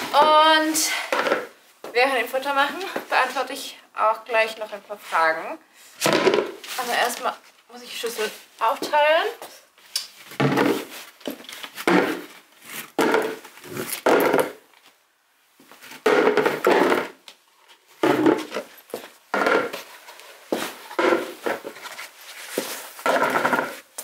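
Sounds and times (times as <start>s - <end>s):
plastic bowls clattering on concrete: 0.1s - 1.6s, 6.0s - 7.2s, 10.4s - 14.7s, 15.8s - 17.3s, 18.0s - 24.0s.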